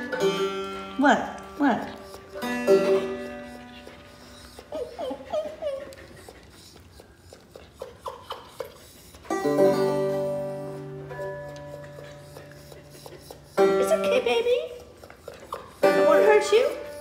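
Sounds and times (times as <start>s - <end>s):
banjo chord strummed: 0.0s - 1.0s, 2.4s - 3.6s, 9.3s - 11.6s, 15.8s - 16.9s
dog whining: 0.0s - 17.0s.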